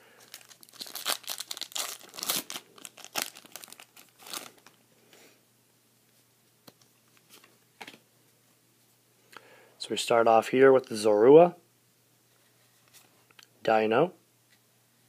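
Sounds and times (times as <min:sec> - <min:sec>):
foil wrapper tearing and crinkling: 0:00.2 - 0:04.7.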